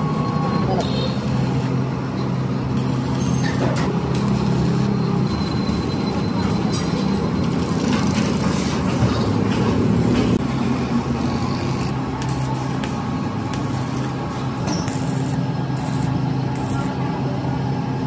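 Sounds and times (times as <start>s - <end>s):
welding arc crackling: 0.0s - 1.9s, 2.6s - 6.0s, 9.9s - 17.0s
steady low hum: 7.1s - 18.0s.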